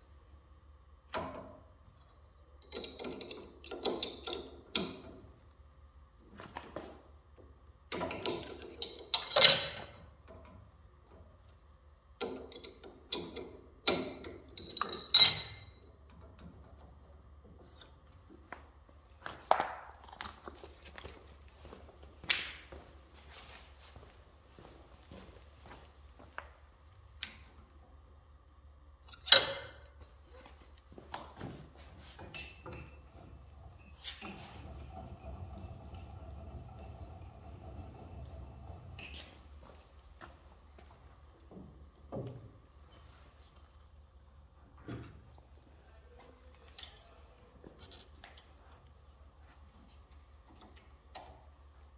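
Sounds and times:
metal parts clinking and knocking: 0:02.6 - 0:05.0, 0:08.0 - 0:10.0, 0:12.2 - 0:15.8, 0:29.1 - 0:29.9
metallic clank with ring: 0:14.8 - 0:15.8.

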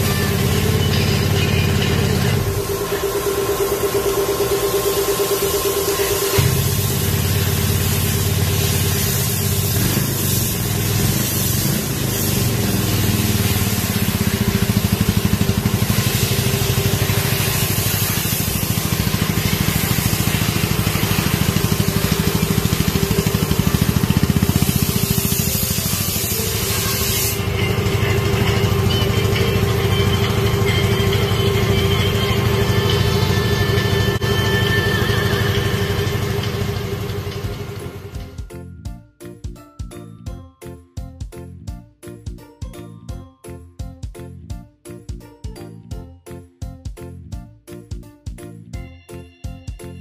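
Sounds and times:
scooter engine idling: 0:00.0 - 0:38.4.

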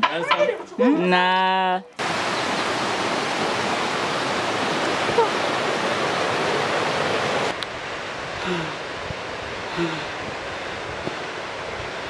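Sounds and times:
mountain stream rushing: 0:02.0 - 0:12.0.

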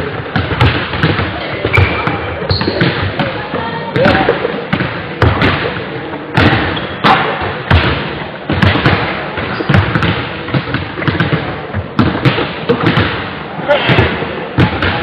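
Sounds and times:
basketball dribbling on wooden floor: 0:00.1 - 0:03.3, 0:08.5 - 0:13.2.

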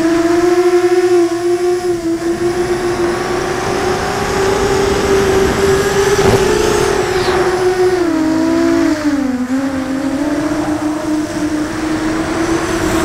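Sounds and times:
quadcopter motors whining: 0:00.0 - 0:13.0
rushing air hiss: 0:04.7 - 0:08.7.

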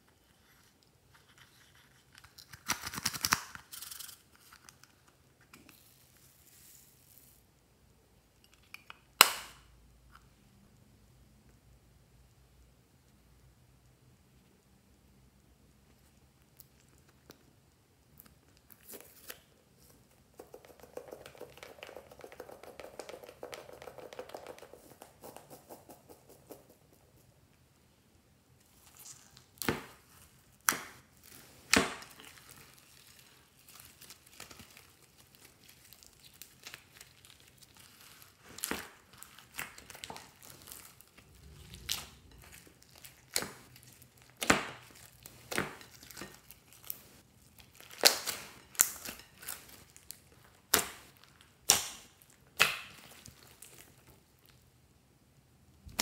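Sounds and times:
slime crackling and popping: 0:28.7 - 0:54.6.

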